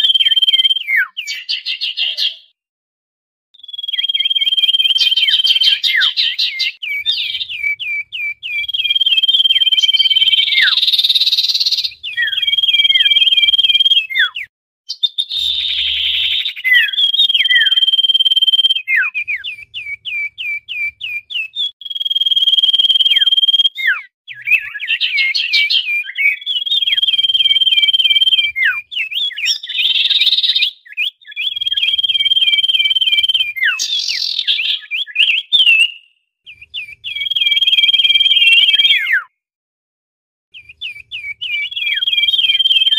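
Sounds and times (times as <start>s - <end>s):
bird whistling calls: 0.0s - 2.5s, 3.6s - 39.3s, 40.6s - 42.9s
bird harsh chattering: 3.6s - 17.8s, 23.0s - 36.0s.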